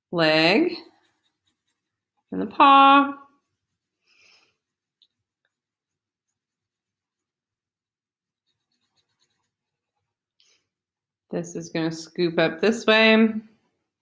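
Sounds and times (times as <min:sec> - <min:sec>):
pencil scratching on paper: 0:00.2 - 0:10.9.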